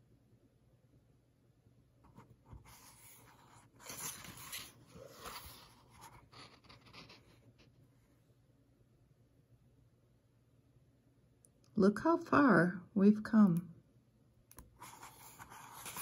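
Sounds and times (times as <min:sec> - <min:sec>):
paper page turning: 0:02.5 - 0:07.6, 0:14.8 - 0:16.0.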